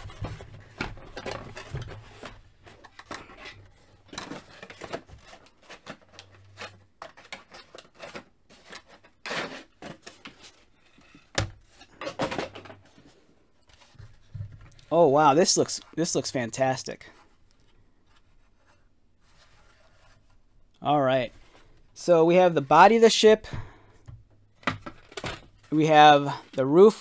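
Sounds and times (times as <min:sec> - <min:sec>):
cardboard rustling and scraping: 0:00.0 - 0:16.2, 0:17.0 - 0:20.5.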